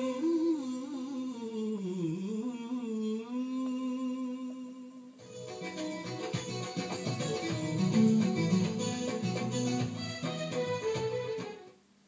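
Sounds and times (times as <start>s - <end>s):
hummed vocal theme music: 0.0s - 10.1s
strummed guitar: 5.2s - 11.7s.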